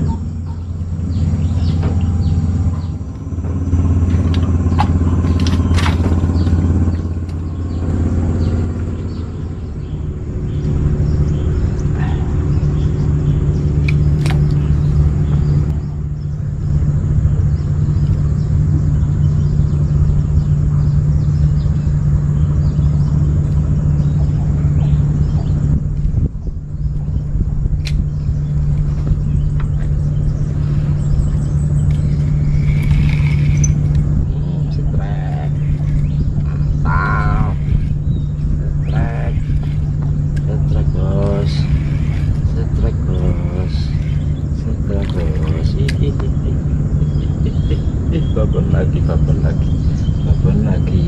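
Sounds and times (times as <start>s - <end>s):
engine running with low hum: 0.0s - 51.0s
sharp clicks: 13.8s - 14.7s, 27.8s - 28.1s.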